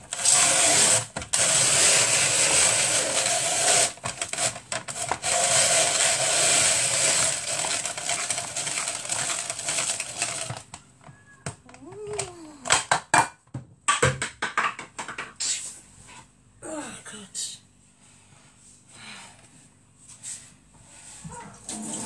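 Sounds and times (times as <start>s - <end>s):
kitchen machine motor whirring: 0.0s - 10.6s.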